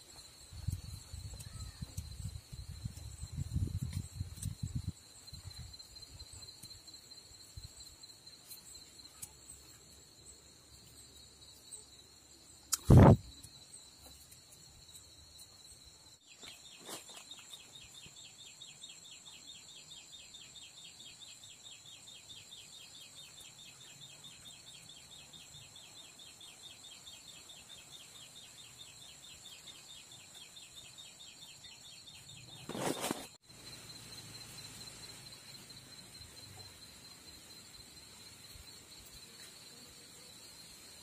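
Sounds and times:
insects shrilling: 12.6 - 15.0
sharp click: 12.7 - 13.2.

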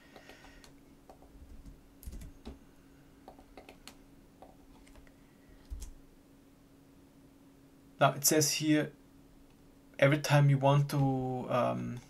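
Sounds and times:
mouse and keyboard clicks: 3.2 - 5.1.

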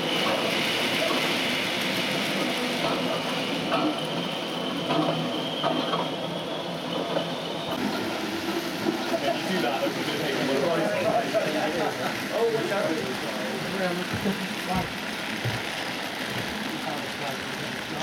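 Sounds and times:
model train wheels rumbling: 7.8 - 18.0.

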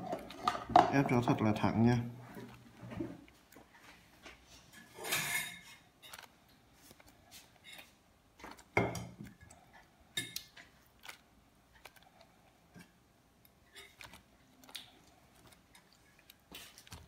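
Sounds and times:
plastic bag crinkling: 6.0 - 7.8, 13.7 - 17.0
plastic rustles: 13.7 - 17.0.

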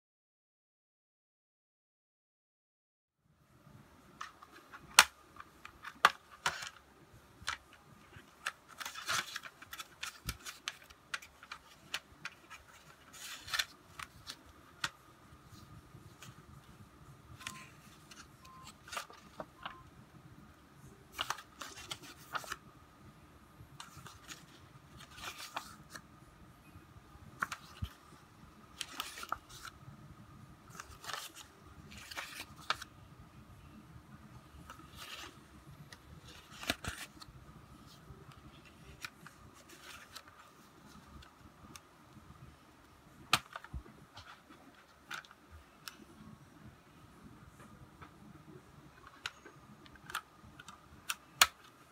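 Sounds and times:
paper booklet rustling: 4.0 - 19.8, 21.1 - 22.6, 23.8 - 26.0, 27.4 - 29.8, 30.7 - 32.9, 34.5 - 41.8, 43.2 - 46.2.

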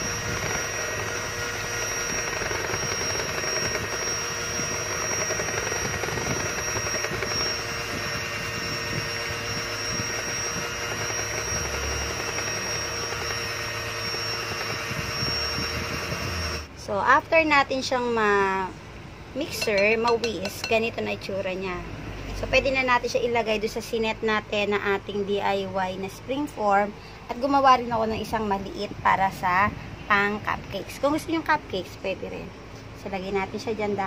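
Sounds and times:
electric hand mixer whining: 0.0 - 16.7, 19.5 - 20.8.

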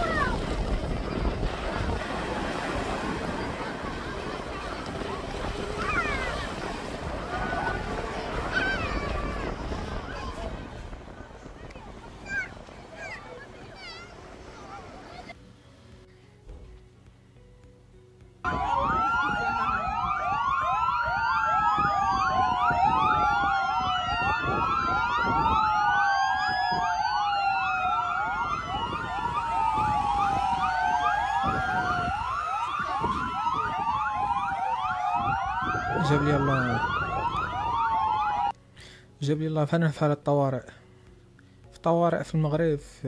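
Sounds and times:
low traffic rumble: 18.3 - 38.6
sirens wailing: 18.4 - 38.6.

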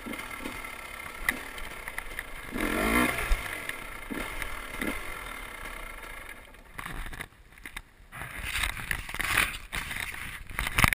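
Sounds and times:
motorcycle engine running slowly: 0.0 - 7.3.

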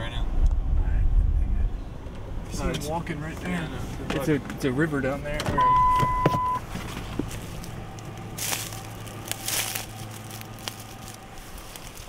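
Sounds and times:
short beep: 5.5 - 6.6
footsteps crunching through dry leaves: 6.8 - 12.0.

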